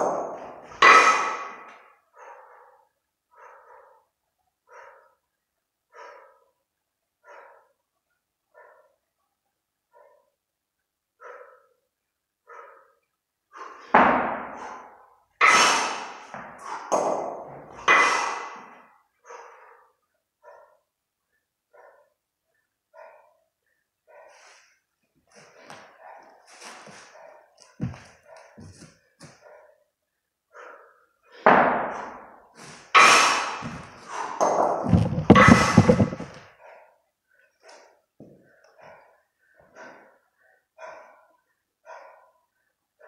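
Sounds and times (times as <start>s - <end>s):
heavy breathing: 1.4s - 5.2s, 5.9s - 7.8s, 12.4s - 13.9s, 17.6s - 20.8s, 30.5s - 31.4s, 32.5s - 43.0s
kettlebell thuds: 34.4s - 36.4s.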